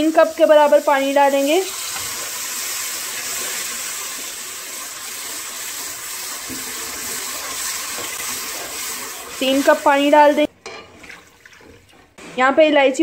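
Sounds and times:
water sizzling in hot fat: 0.0 - 12.7.

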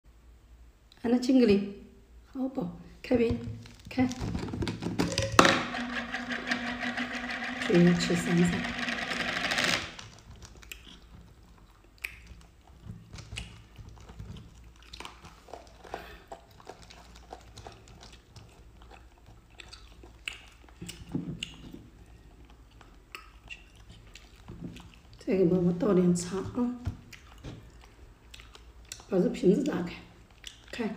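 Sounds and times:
chewing crunches: 10.0 - 25.2, 27.0 - 30.9.

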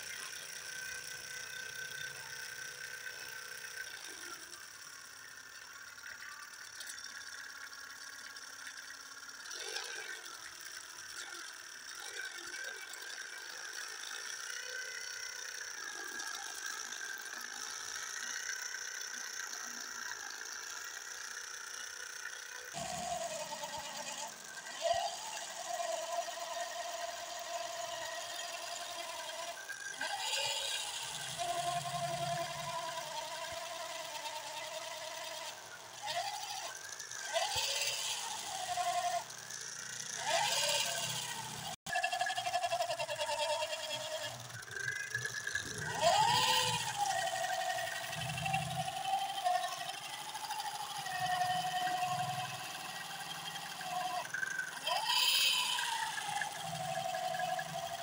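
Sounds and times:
lower-pitched motor whine: 0.0 - 58.0
toy electric motor whining: 0.0 - 58.0
wheels spinning in sand: 0.0 - 58.0.

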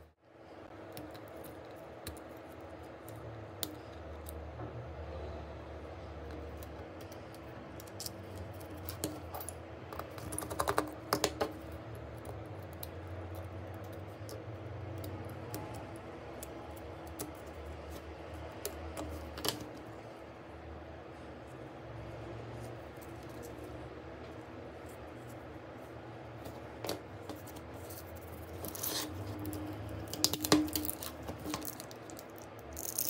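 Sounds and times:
small tools clicking and tapping: 6.2 - 19.8, 26.4 - 33.0.

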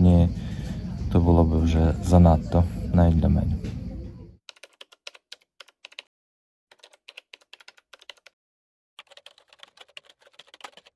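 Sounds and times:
keyboard typing clicks: 4.5 - 6.1, 6.7 - 8.3.

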